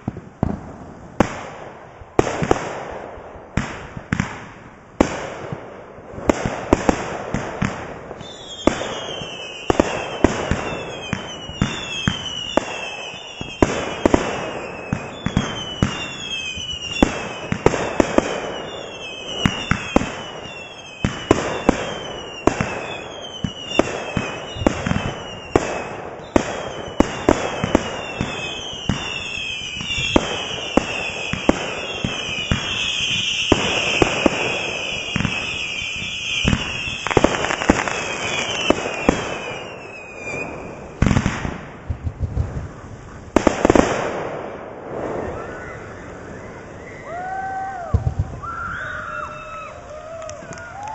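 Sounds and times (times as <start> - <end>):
firework bangs: 0.0 - 48.5
falling firework whistles: 8.2 - 41.5, 44.9 - 50.9.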